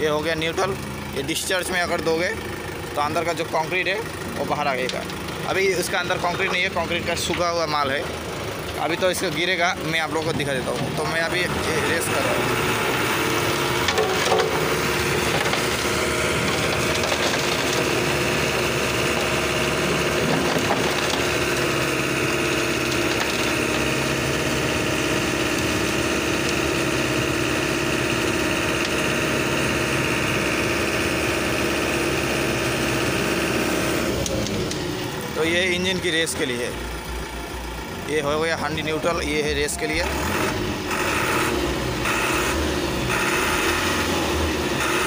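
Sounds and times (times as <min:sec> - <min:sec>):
mixer engine revving: 0:00.0 - 0:45.0
mixer drum turning: 0:00.6 - 0:35.4.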